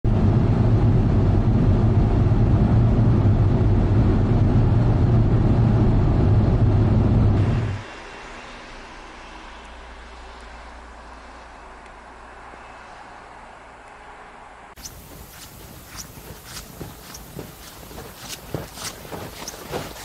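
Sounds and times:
car cabin engine and road noise: 0.1 - 20.0
faint outdoor hiss: 7.5 - 20.0.

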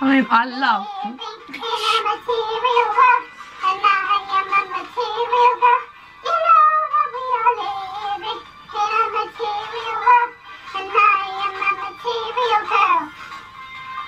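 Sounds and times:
high voice singing: 1.0 - 2.6.

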